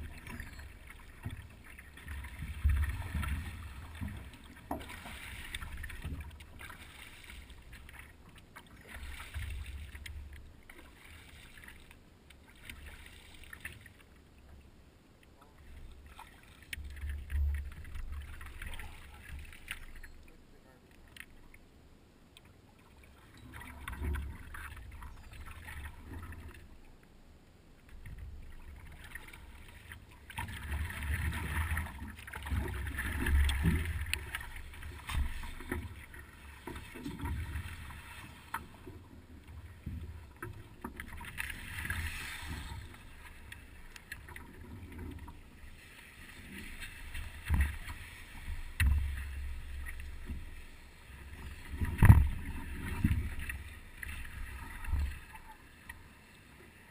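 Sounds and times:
water sloshing around paddleboard: 0.0 - 14.7, 15.3 - 21.6, 27.8 - 56.9.

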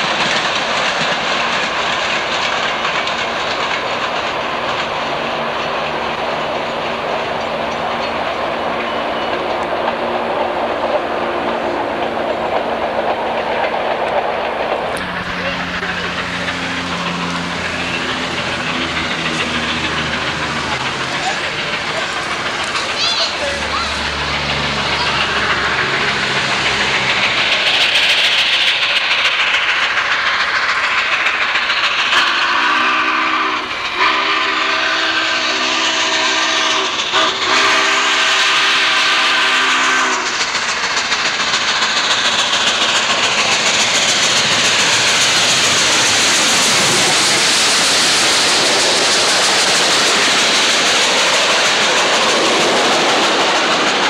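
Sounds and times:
steam locomotive exhaust and rumble: 0.0 - 54.0
train cars clattering on rails: 0.0 - 54.0
multi-note train whistle: 32.1 - 40.4.

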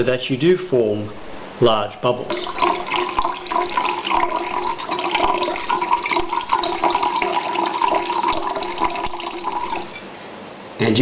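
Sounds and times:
water pouring into a glass: 2.3 - 10.0.

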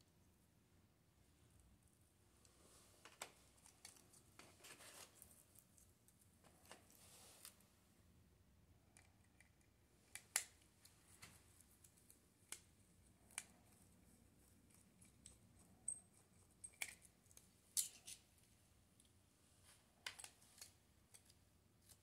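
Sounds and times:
screwdriver and metal parts clicking: 15.0 - 18.2.

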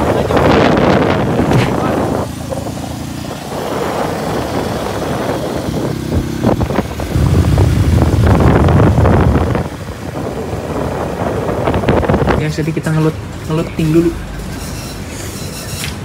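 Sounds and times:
wind buffeting microphone: 0.0 - 12.7
motorcycle engines running: 0.0 - 15.3.

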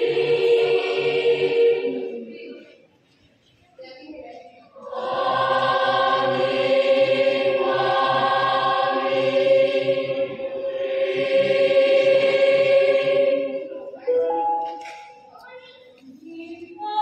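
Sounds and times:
choir singing held chord: 0.0 - 2.5, 4.8 - 15.2.

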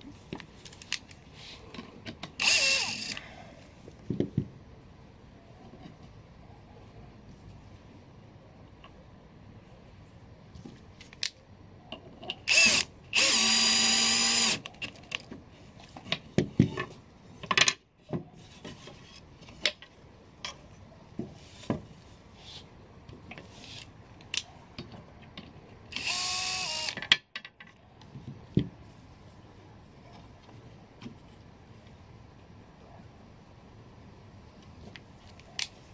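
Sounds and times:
power drill driving screws: 2.4 - 3.2, 12.5 - 14.6, 25.9 - 27.0.

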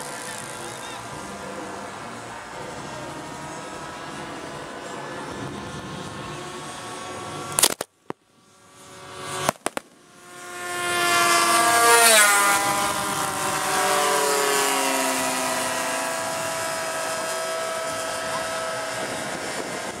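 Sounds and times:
model plane engines passing: 0.0 - 20.0
pyrotechnic bangs: 9.4 - 10.1.

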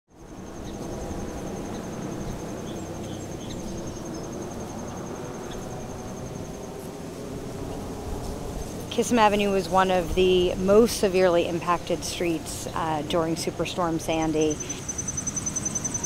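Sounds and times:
insect trilling: 0.2 - 6.8, 14.3 - 16.0
low outdoor rumble: 0.2 - 16.0.

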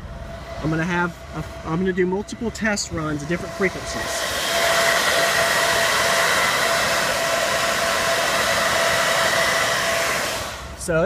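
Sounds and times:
faint high whine: 0.0 - 4.8
cooling fans rushing: 0.0 - 11.0.

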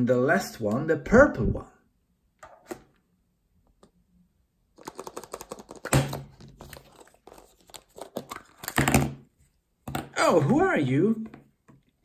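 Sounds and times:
plastic egg clicks and rattles: 4.8 - 6.0.

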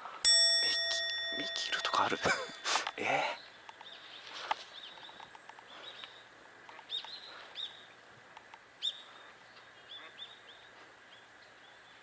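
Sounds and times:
small birds chirping: 0.6 - 12.0.

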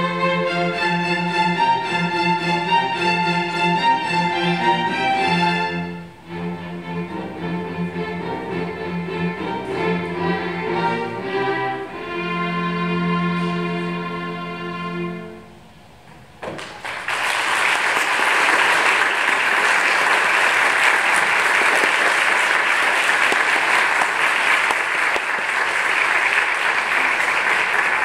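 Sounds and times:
audience applause: 16.5 - 28.0.

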